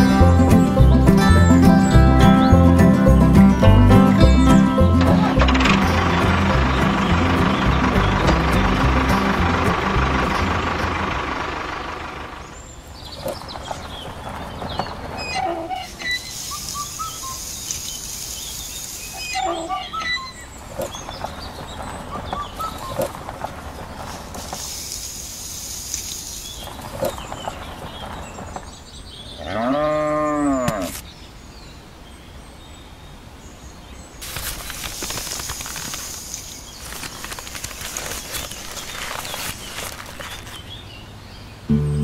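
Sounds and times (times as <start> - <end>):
bird chirps: 12.4 - 25.1
high hiss: 16.0 - 19.4, 24.2 - 26.8, 34.2 - 38.6
cow mooing: 29.4 - 30.9.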